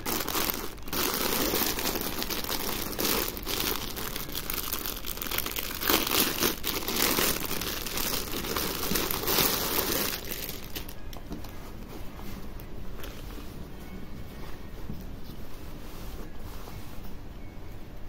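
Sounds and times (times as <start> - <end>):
plastic bag crinkling: 0.0 - 11.6.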